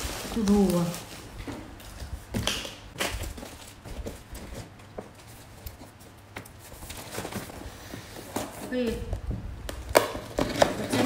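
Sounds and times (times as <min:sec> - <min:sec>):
packaging rustle: 0:00.0 - 0:02.0, 0:06.6 - 0:08.6.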